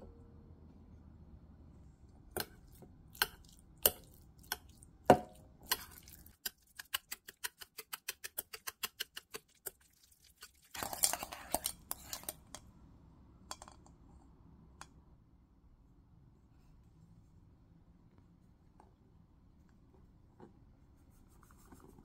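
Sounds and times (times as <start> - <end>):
whisk tapping ceramic bowl: 2.4 - 12.4
whisk scraping bowl: 5.6 - 12.4.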